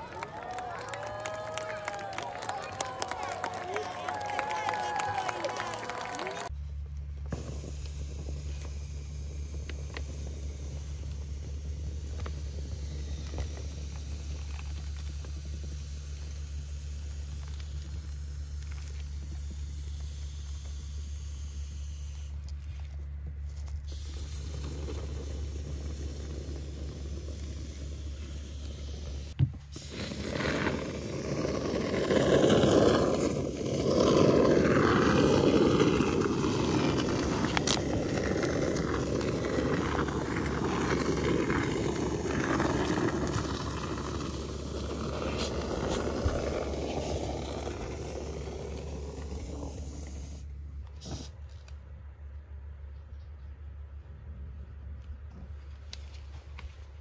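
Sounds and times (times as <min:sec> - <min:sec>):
steady low hum: 0:00.0 - 0:57.0
aerosol foam spraying: 0:23.9 - 0:34.4, 0:35.2 - 0:51.4.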